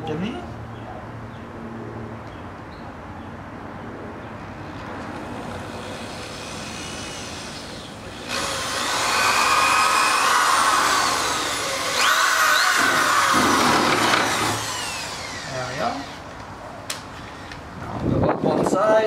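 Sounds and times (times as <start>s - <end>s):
cordless drill whining: 5.4s - 16.4s.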